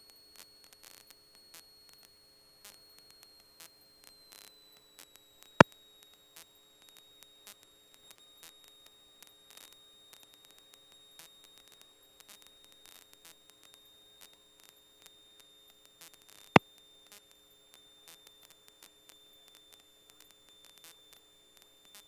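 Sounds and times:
faint high whine: 0.0s - 22.0s.

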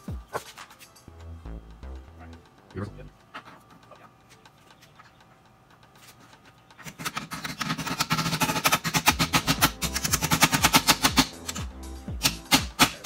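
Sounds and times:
impact wrench hammering: 6.8s - 13.0s.

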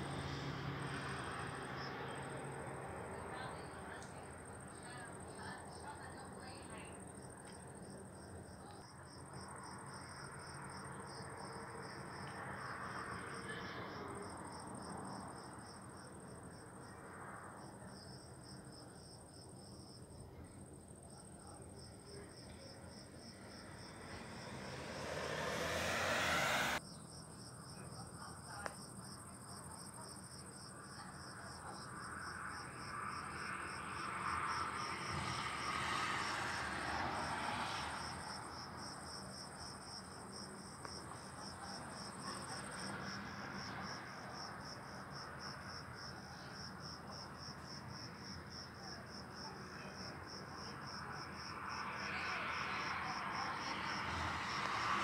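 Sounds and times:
crickets chirping: 0.0s - 55.0s
rushing noise: 23.7s - 26.8s.

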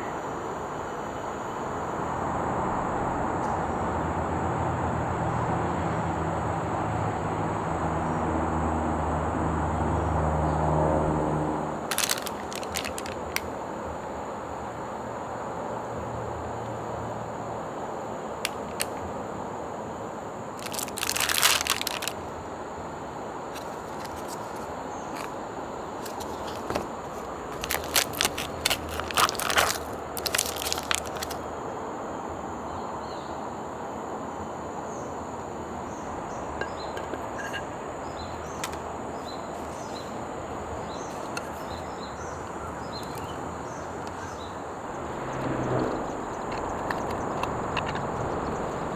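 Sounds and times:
steady outdoor hiss: 0.0s - 48.9s
packaging crinkling: 11.9s - 13.4s, 20.6s - 22.2s, 26.0s - 31.4s
foil lid peeling off tray: 26.1s - 31.4s.

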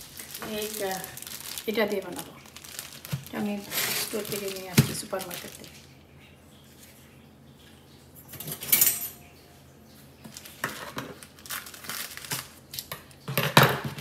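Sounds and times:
plastic wrapping crinkling: 0.0s - 6.0s, 10.0s - 14.0s.

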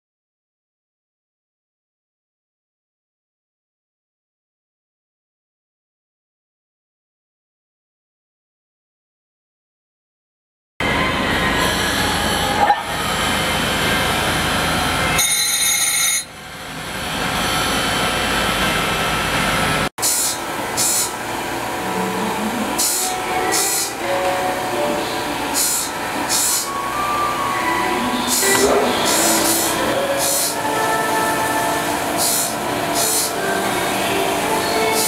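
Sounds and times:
high machine whine: 10.8s - 35.0s
short hissing bursts: 20.0s - 21.1s, 25.6s - 26.6s
thin machine sound: 20.0s - 35.0s.

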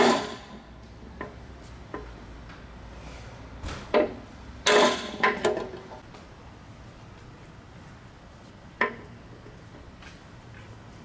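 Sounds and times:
hammer striking metal rod: 4.7s - 5.5s.

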